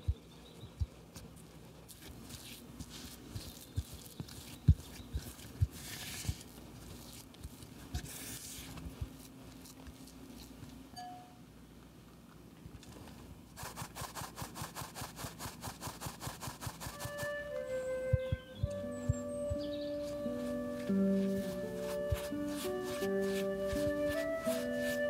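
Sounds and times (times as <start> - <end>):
metal sieve shaken sifting flour: 1.9 - 9.8, 13.5 - 17.6, 20.4 - 25.0.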